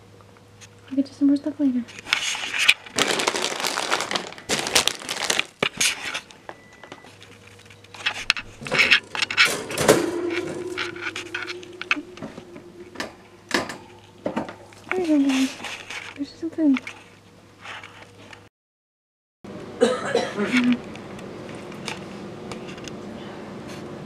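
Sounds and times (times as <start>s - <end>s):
rustling and crinkling: 1.9s - 6.4s, 14.6s - 18.4s.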